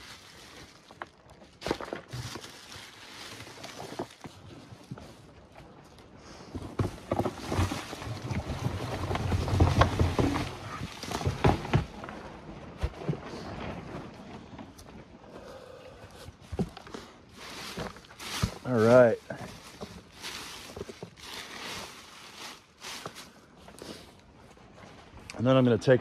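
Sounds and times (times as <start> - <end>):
dry leaves rustling and crackling: 0.0 - 5.2, 7.3 - 12.0, 17.3 - 24.7
plastic containers knocking: 6.8 - 12.0.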